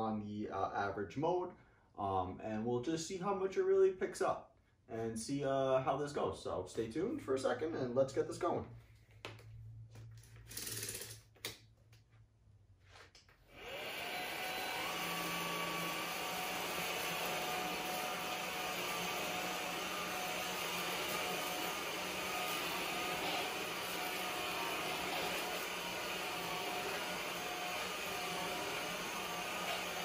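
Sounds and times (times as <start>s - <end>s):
stick vacuum motor whining: 13.5s - 30.0s.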